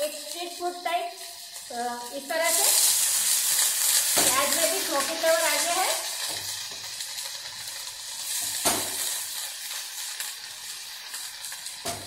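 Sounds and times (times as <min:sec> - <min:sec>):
food sizzling in hot oil: 0:00.0 - 0:12.0
sharp knock: 0:08.6 - 0:09.0.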